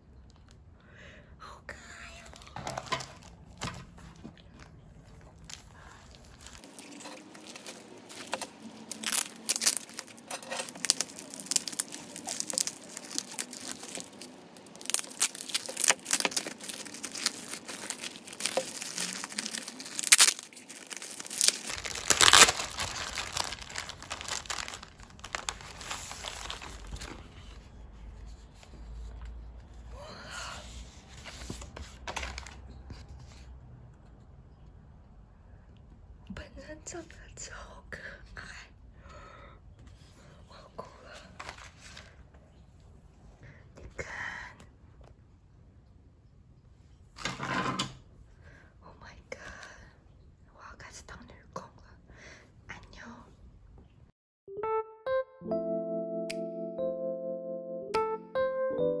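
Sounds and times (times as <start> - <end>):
plastic bag crinkling and tearing: 5.4 - 27.4.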